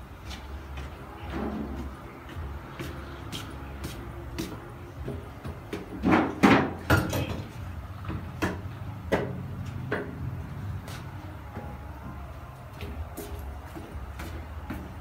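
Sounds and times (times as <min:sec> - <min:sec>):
sharp knocks and bangs: 0:05.7 - 0:07.5.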